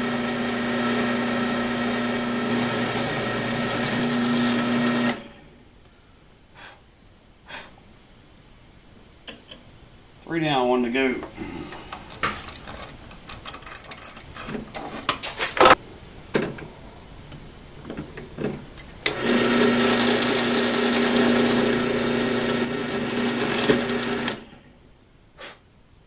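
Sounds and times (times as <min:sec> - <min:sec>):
drill press motor humming: 0:00.0 - 0:05.4, 0:19.1 - 0:24.5.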